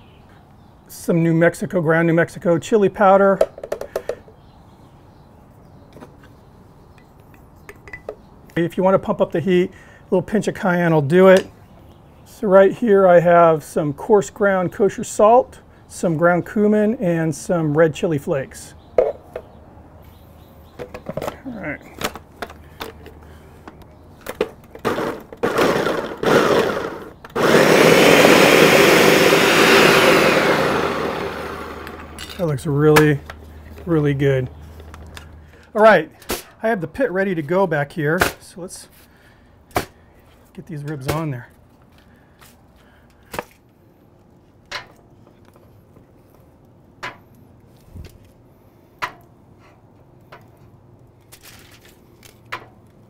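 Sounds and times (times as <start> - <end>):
blender clicks: 25.4 - 32.1
blender running: 25.4 - 32.2.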